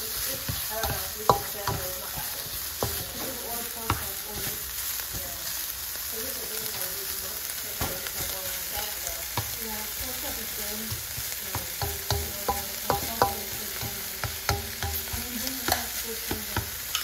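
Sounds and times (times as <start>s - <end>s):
food sizzling in a frying pan: 0.0s - 17.0s
utensil knocking and scraping pan: 0.3s - 5.3s, 10.8s - 17.0s.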